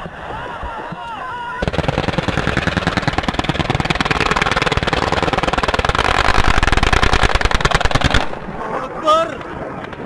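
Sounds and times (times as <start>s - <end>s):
rapid automatic gunfire: 1.6s - 8.4s.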